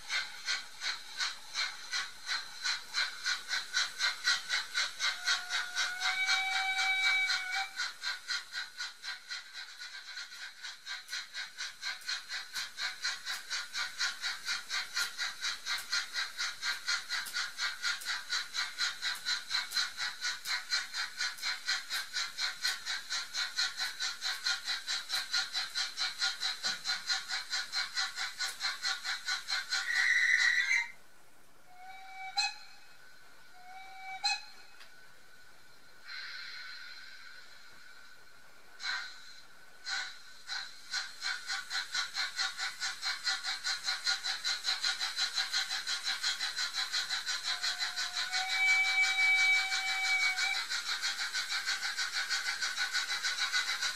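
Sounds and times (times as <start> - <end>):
rhythmic steam chuffs: 0.0 - 53.9
steam whistle blast: 5.2 - 7.8, 31.7 - 32.9, 33.5 - 34.8, 47.8 - 50.6.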